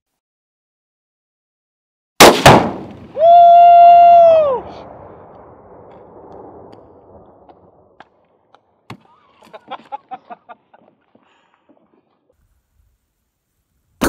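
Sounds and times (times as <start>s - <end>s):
explosion rumbling echo: 4.4s - 8.0s.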